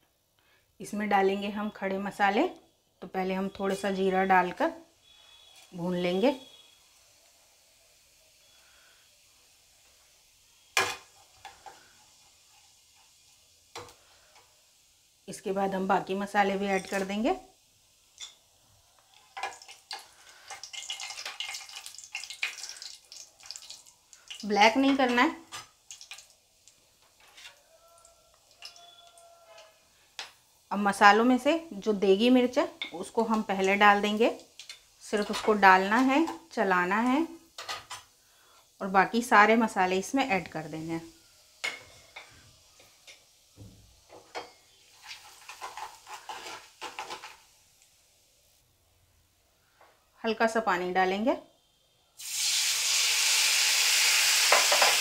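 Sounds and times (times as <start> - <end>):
spices sizzling in hot oil: 0.5 - 48.6, 52.0 - 55.0
metal ladle scraping a pan: 27.1 - 27.6, 34.7 - 36.4, 44.4 - 47.4
ladle scraping metal pan: 45.0 - 47.3.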